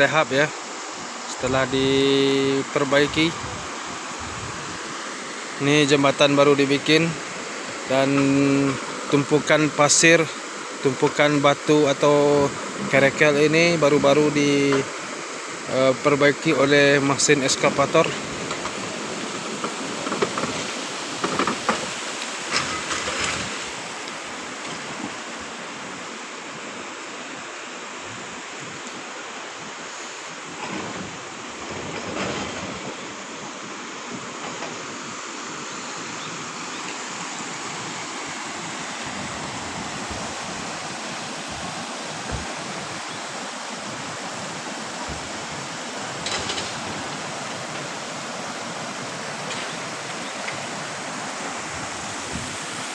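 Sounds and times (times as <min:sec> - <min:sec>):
stream rushing over stones: 0:00.0 - 0:52.9.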